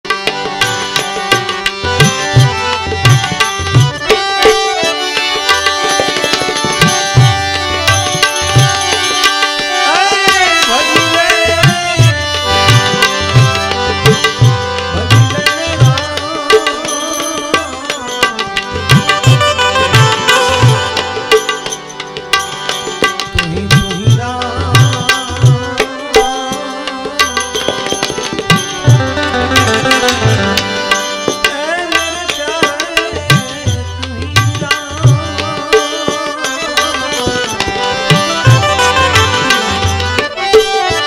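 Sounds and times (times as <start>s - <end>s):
tabla playing a steady rhythm: 0.0s - 41.0s
sustained instrumental tones: 0.2s - 34.2s, 34.8s - 41.0s
man singing: 9.6s - 21.5s, 23.3s - 41.0s.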